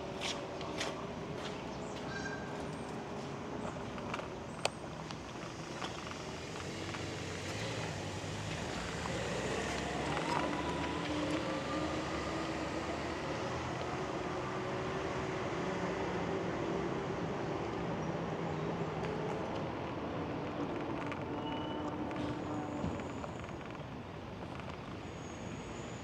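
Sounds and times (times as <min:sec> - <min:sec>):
city street traffic: 0:00.0 - 0:26.0
car driving past: 0:06.4 - 0:16.4.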